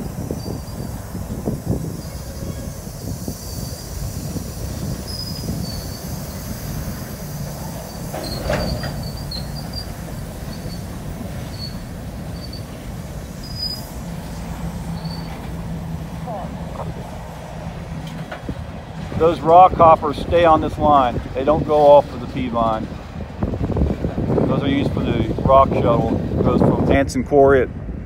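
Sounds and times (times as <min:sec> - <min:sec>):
high-pitched wheel squeals: 0:00.0 - 0:15.6
train wheels rumbling on rail: 0:00.0 - 0:28.0.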